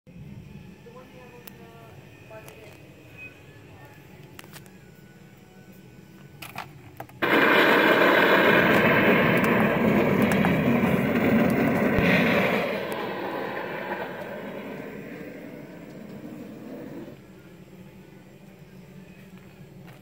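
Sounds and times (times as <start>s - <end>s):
rushing rumbling sound effect: 7.2s - 17.2s.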